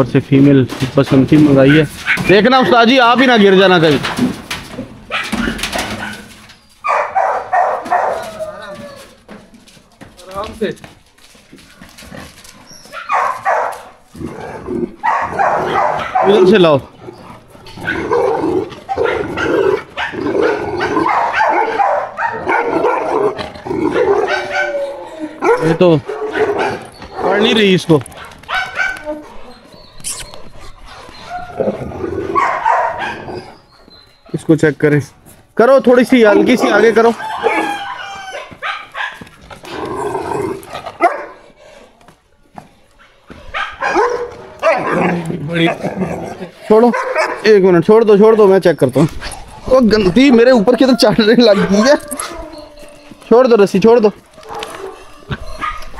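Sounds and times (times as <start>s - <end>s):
dog barking: 5.1s - 8.4s, 12.9s - 13.9s, 15.0s - 16.6s, 18.9s - 23.2s, 24.0s - 24.8s, 25.4s - 27.4s, 28.2s - 29.3s, 32.3s - 33.5s, 36.6s - 39.3s, 41.0s - 41.4s, 43.5s - 45.2s, 46.9s - 47.5s, 51.4s - 52.5s, 54.4s - 55.9s.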